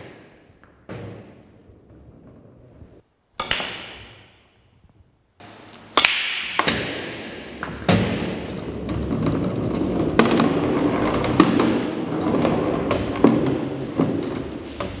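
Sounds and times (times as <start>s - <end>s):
balls rolling on cloth: 0.6s - 3.0s, 7.5s - 15.0s
pool balls clacking: 5.9s - 15.0s.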